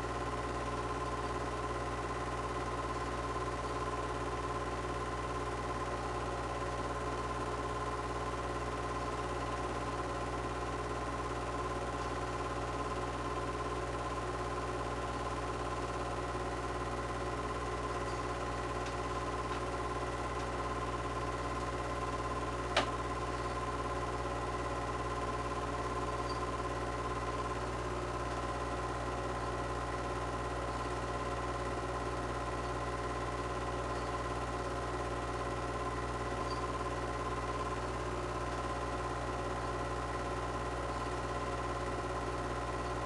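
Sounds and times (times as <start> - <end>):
film projector whirring hum: 0.0 - 43.0
sharp click: 22.7 - 23.0.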